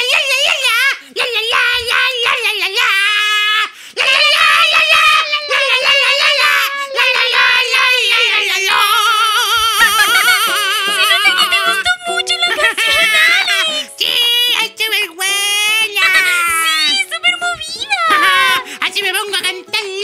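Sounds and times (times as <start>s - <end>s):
high voices singing with vibrato: 0.0s - 20.0s
instrumental backing music: 9.6s - 20.0s.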